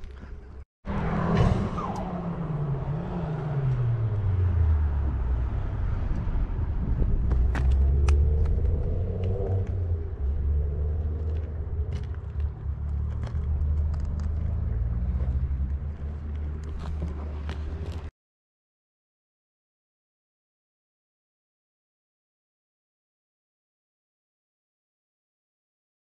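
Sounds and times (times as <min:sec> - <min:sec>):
low engine rumble: 0:00.0 - 0:18.1.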